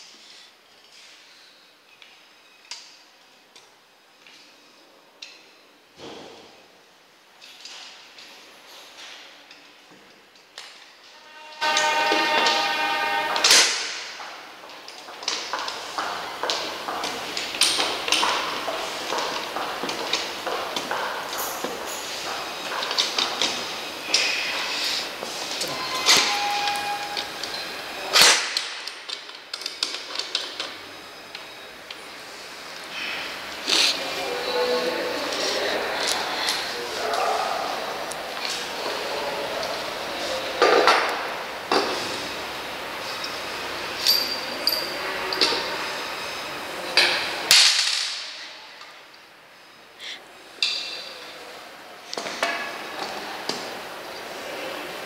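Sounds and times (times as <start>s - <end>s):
loud metal clack: 11.2s - 14.4s
steel tubes clanking together: 11.2s - 30.8s, 44.0s - 45.7s.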